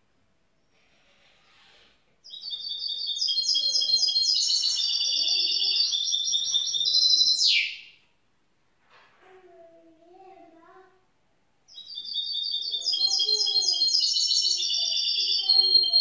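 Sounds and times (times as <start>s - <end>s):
bird singing rapid high notes: 2.2s - 8.0s, 11.7s - 16.0s.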